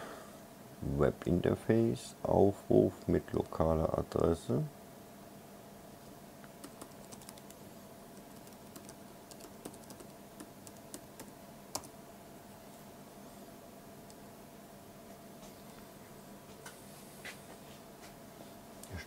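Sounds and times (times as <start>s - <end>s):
laptop keyboard typing: 6.6s - 7.6s, 8.2s - 11.9s.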